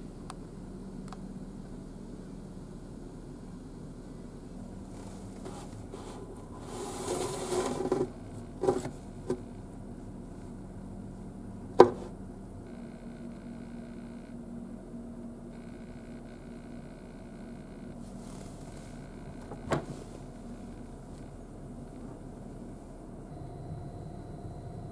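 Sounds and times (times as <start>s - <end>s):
low steady hum: 0.0s - 24.9s
basket scraping on wooden shelf: 5.3s - 9.0s.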